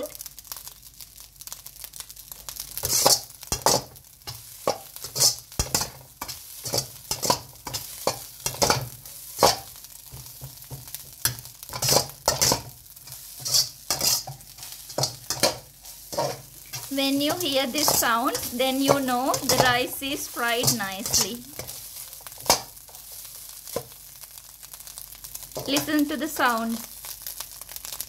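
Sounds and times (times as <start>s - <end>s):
rice sizzling: 0.0s - 28.0s
metal ladle scraping wok: 2.8s - 9.7s, 11.7s - 23.1s.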